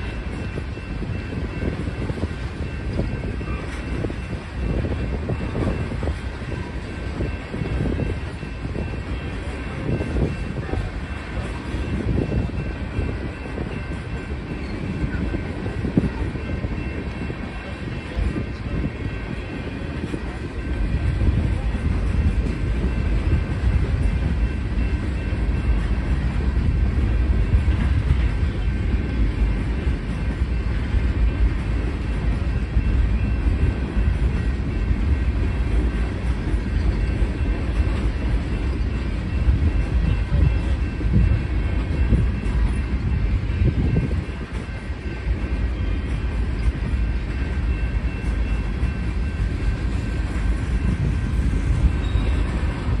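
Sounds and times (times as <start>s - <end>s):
train wheels rumbling on rail: 0.0s - 53.0s.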